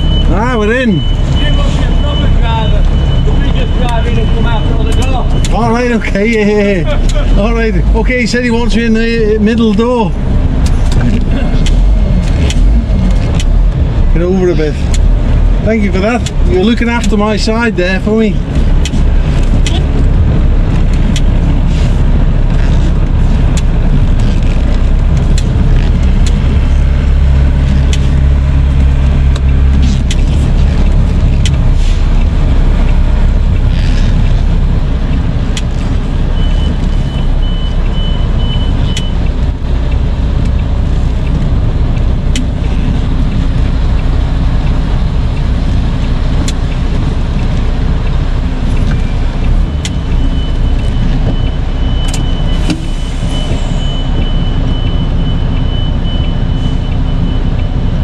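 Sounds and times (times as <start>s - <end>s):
high evenly spaced beeps: 0.0s - 7.5s
lorry diesel engine running: 0.0s - 58.0s.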